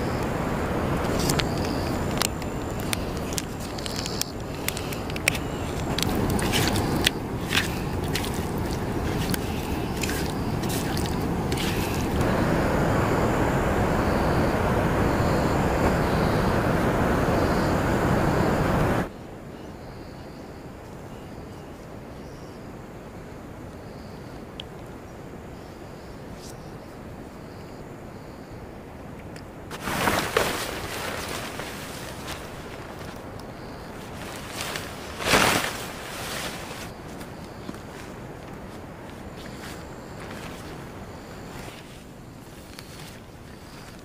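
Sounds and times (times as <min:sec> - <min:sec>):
loud steady rushing noise: 0:00.0 - 0:19.1
hands squelching paste into fish: 0:06.0 - 0:12.2.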